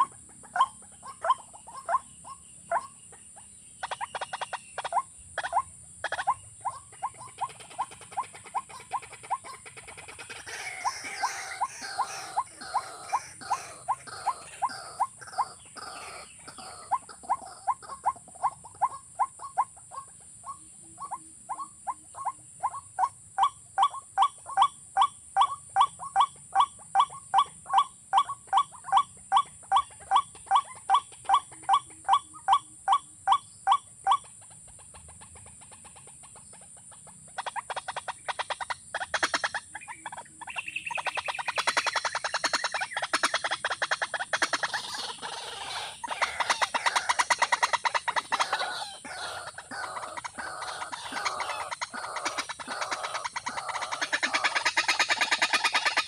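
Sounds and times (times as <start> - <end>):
bird calling hollow notes: 39.0 - 56.0.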